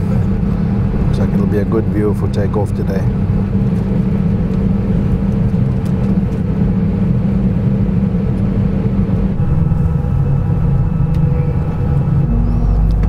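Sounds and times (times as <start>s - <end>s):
aircraft cabin rumble and hum: 0.0s - 13.0s
steady tones: 9.2s - 13.0s.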